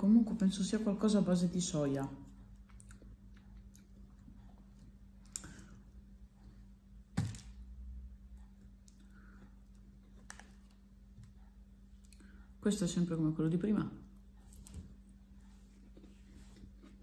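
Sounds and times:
soft chewing: 2.2s - 6.9s, 8.1s - 12.6s, 14.0s - 17.0s.

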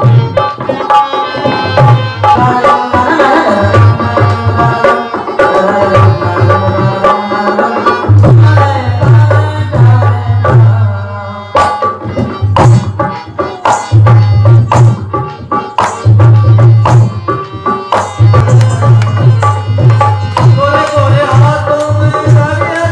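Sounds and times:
hand drum: 0.0s - 10.9s, 11.5s - 22.9s
held melodic line: 11.4s - 22.9s.

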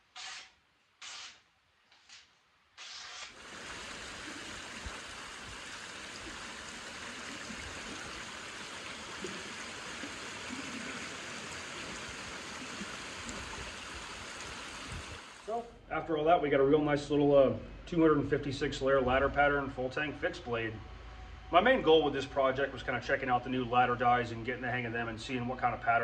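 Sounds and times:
sandpaper rasping on wood: 0.0s - 1.4s
creek running over rocks: 3.4s - 15.5s.

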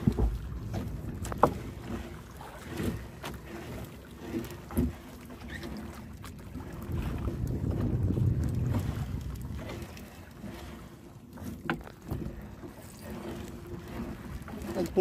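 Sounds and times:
knocks and thumps on boat: 0.0s - 15.0s
wind on microphone: 6.5s - 10.2s.

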